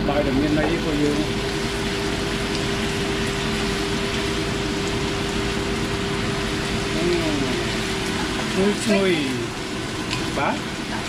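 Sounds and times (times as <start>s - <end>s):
meat sizzling in a pan: 0.0s - 11.0s.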